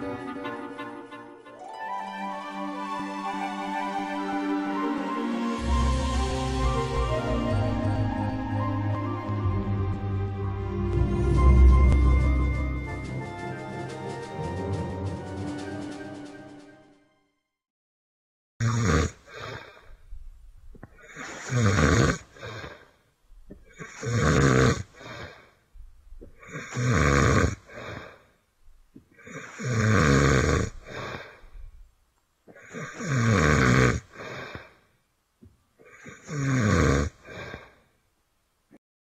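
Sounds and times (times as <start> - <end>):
cartoon character snoring: 18.6 - 20.0, 21.0 - 22.9, 23.6 - 25.5, 26.4 - 28.3, 29.2 - 31.5, 32.5 - 34.8, 35.8 - 37.8
quiet breath: 19.2 - 21.6, 22.2 - 24.1, 24.8 - 25.7, 27.6 - 28.5, 30.7 - 31.9, 34.0 - 35.1, 37.1 - 38.1.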